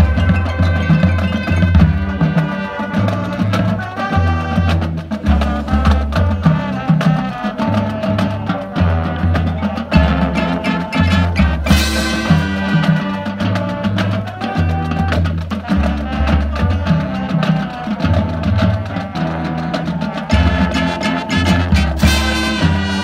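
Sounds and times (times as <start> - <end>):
marching band playing: 0.0 - 23.0.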